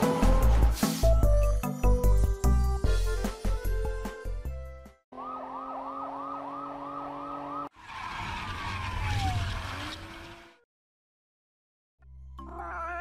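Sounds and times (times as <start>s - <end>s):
police siren yelping: 5.2s - 7.7s.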